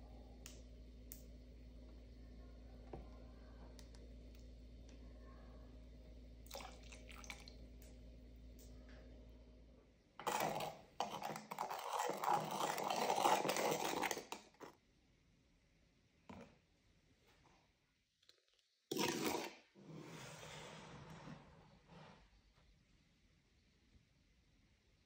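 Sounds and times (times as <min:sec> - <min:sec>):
spoon stirring and scraping in jug: 0:10.2 - 0:14.8, 0:18.9 - 0:22.3.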